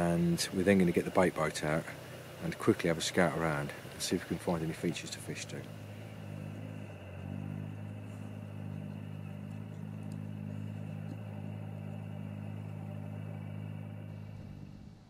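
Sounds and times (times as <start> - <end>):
low engine-like hum: 0.0 - 15.0
faint ticks: 4.9 - 14.1.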